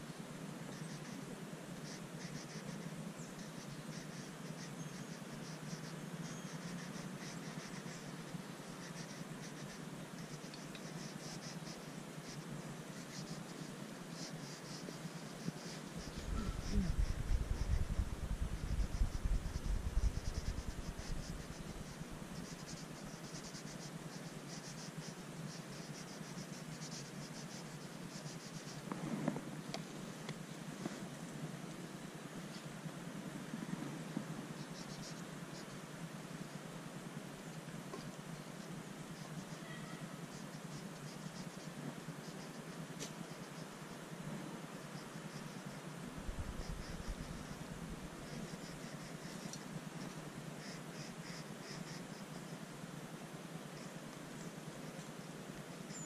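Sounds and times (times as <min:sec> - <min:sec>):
low steady hum: 0:00.0 - 0:56.0
crayon scratching on paper: 0:14.2 - 0:24.9
low rumble: 0:16.0 - 0:22.4.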